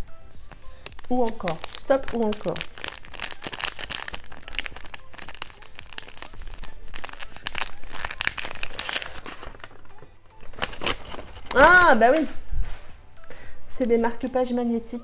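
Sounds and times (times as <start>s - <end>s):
wrapping paper tearing and crumpling: 0.7s - 11.9s.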